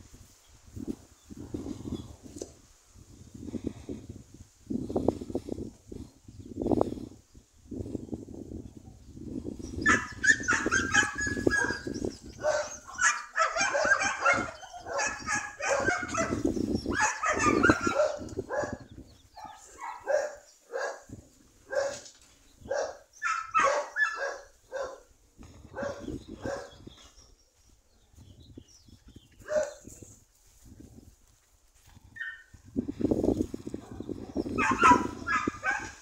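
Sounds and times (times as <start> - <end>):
dog barking and yipping: 9.8 - 18.8, 19.4 - 21.1, 21.7 - 25.0, 25.8 - 26.7, 29.4 - 29.8, 33.8 - 36.0.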